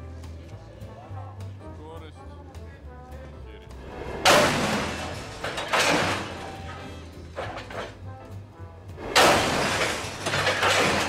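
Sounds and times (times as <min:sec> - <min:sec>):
music with loud crashing hits: 0:03.8 - 0:08.0, 0:09.0 - 0:11.0.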